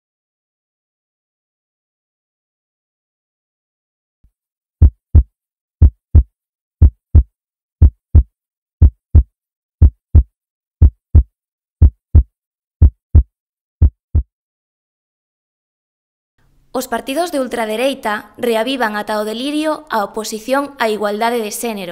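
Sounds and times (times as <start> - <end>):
heartbeat thumps: 4.8 - 14.3.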